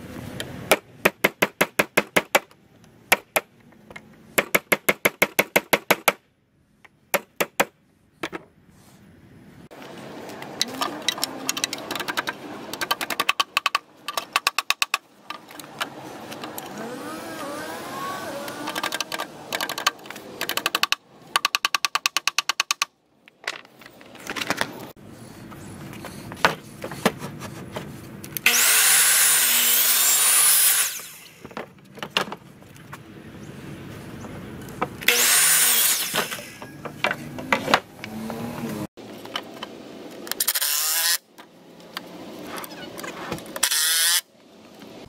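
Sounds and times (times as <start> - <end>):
power saw cutting plywood: 14.7 - 20.9, 28.4 - 31.6, 35.0 - 38.9.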